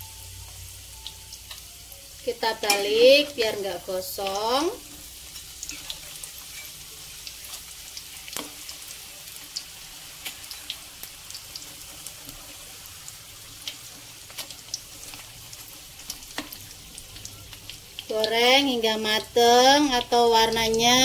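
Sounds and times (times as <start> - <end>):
deep-frying sizzle with pops: 0.0 - 21.0
metal spatula knocking pan: 2.6 - 3.4.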